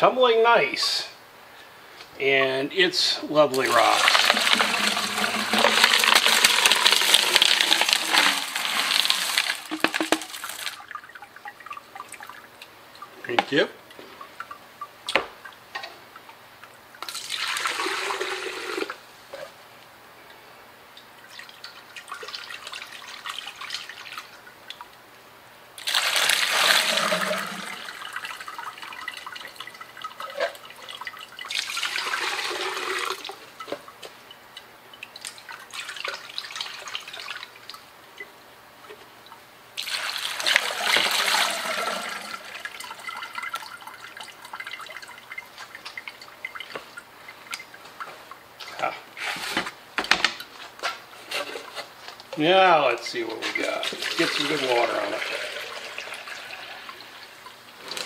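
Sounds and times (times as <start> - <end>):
slurry splashing into a sieve: 3.6 - 11.1, 25.8 - 33.3, 53.4 - 56.4
water dripping: 8.9 - 17.7, 20.9 - 25.1, 25.8 - 48.9.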